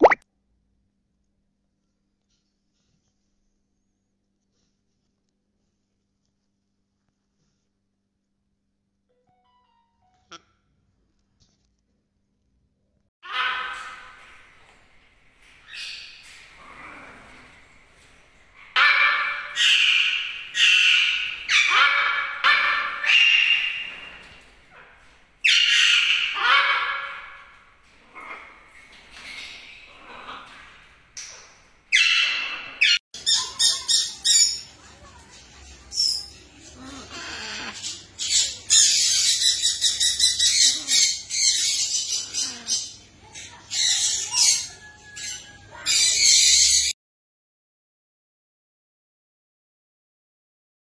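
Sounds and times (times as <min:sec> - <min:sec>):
macaws squawking: 0:18.8 - 0:24.4, 0:25.4 - 0:27.5, 0:36.8 - 0:46.9.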